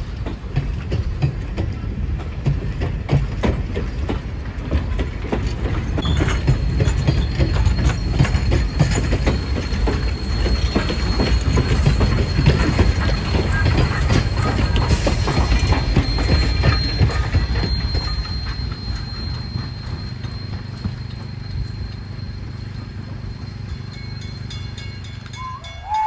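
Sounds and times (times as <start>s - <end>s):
train coaches rumbling on track: 0.0s - 26.0s
wheels clicking and clattering: 0.0s - 26.0s
high-pitched wheel squeal: 6.0s - 23.6s, 25.3s - 26.0s.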